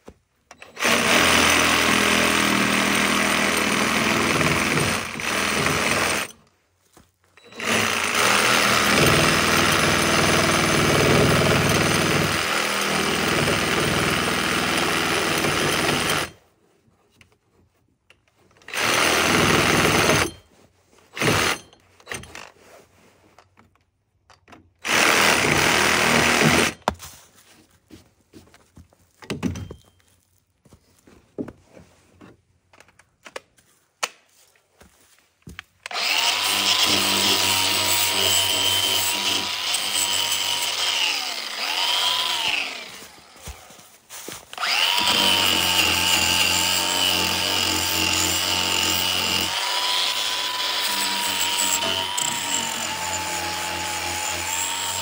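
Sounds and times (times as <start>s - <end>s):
handheld power tool running: 0.5s - 6.4s, 7.4s - 16.4s, 18.7s - 20.4s, 24.8s - 26.8s, 35.8s - 55.0s.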